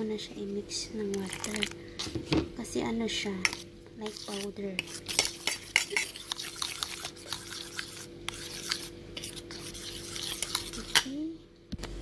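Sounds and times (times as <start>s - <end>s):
fork scraping metal bowl: 3.4s - 11.1s.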